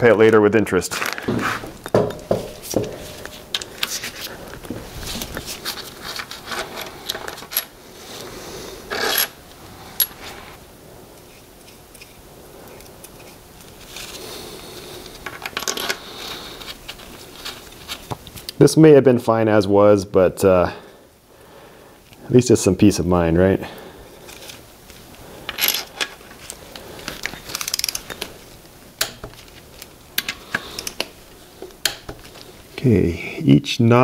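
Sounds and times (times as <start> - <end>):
metal scraping: 0.9 - 10.6
bolts clinking: 1.1 - 4.0.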